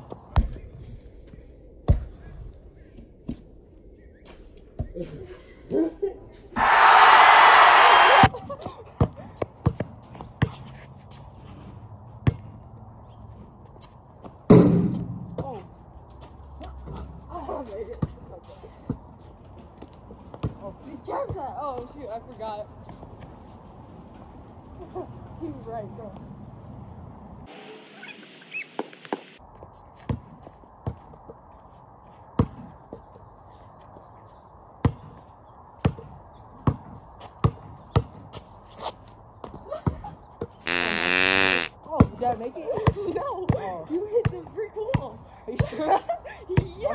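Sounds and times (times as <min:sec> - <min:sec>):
loud crash: 0:06.6 - 0:08.3
basketball bouncing on concrete: 0:36.6 - 0:38.2.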